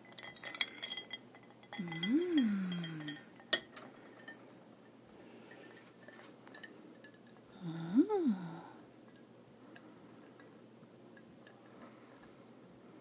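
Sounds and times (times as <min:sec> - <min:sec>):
glass clink: 0:00.0 - 0:04.4.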